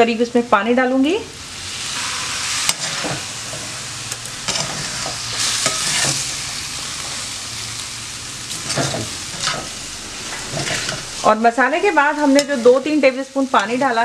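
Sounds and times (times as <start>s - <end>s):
noodles sizzling in a pan: 0.6s - 14.0s
metal spatula scraping a pan: 1.9s - 6.6s, 8.5s - 11.2s.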